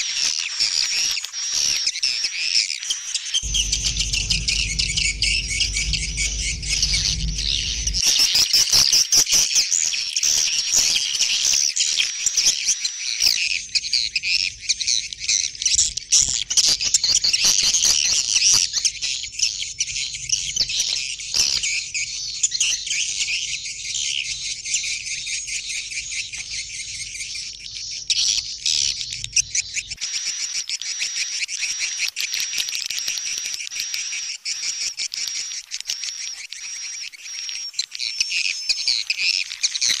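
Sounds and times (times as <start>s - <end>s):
low steady hum: 3.4s - 8.0s.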